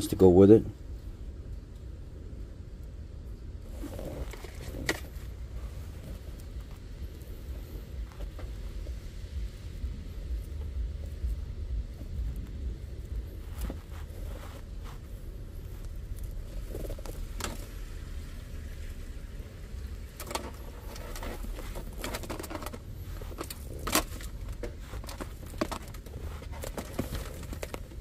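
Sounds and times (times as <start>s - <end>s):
steady low hum: 0.0s - 28.0s
plastic connectors rustling and clicking: 19.9s - 28.0s.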